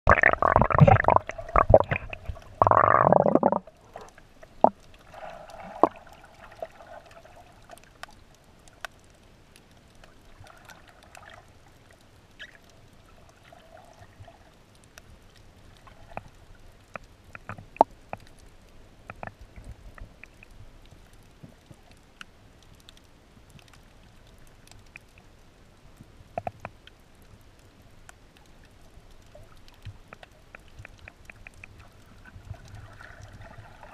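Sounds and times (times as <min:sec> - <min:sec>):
underwater clicks and pops: 0:00.1 - 0:05.0, 0:16.1 - 0:18.4, 0:19.0 - 0:20.6, 0:26.4 - 0:27.0
water sloshing and splashing: 0:00.1 - 0:08.8, 0:29.2 - 0:33.9
muffled underwater hiss: 0:00.1 - 0:33.9.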